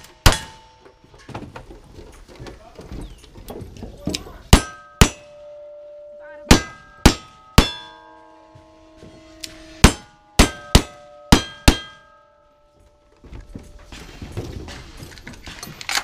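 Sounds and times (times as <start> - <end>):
steel target ringing: 0.0 - 1.0, 4.5 - 13.1.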